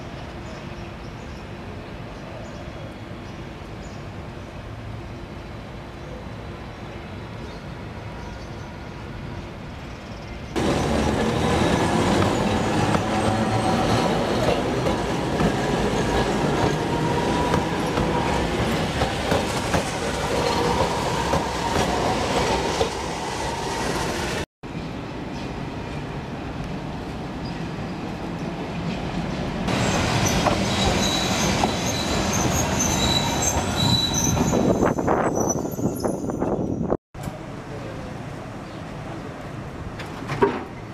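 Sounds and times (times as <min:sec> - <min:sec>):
tram wheels rumbling on rails: 0:10.5 - 0:40.3
wheels squealing: 0:29.7 - 0:37.0.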